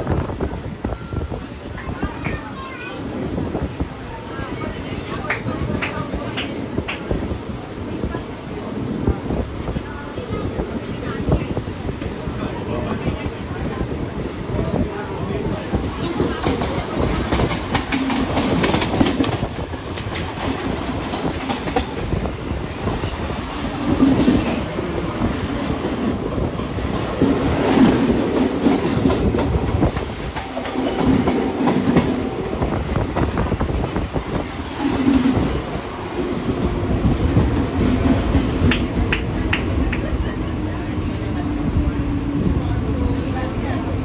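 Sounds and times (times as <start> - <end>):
train passing close: 0.0 - 44.0
train rumbling: 0.0 - 44.0.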